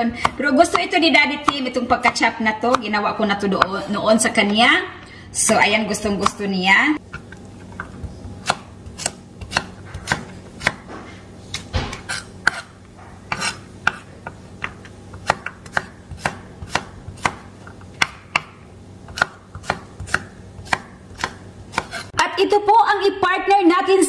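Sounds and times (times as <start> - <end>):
knife chopping on wooden board: 0.2 - 3.0, 7.2 - 22.1.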